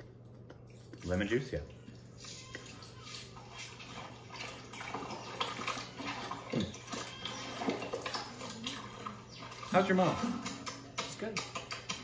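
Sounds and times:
wet squelching of meat in marinade: 0.4s - 12.0s.

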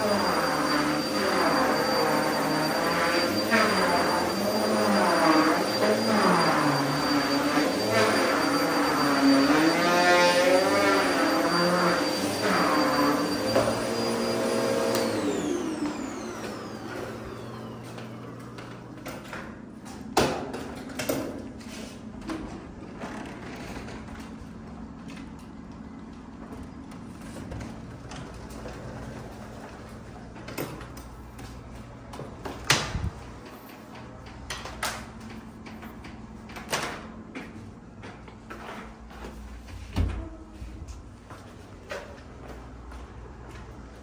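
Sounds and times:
vacuum cleaner humming: 0.0s - 19.3s.

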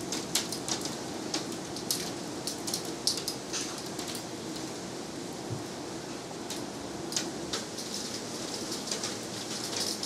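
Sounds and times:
raindrops tapping: 6.5s - 10.0s.

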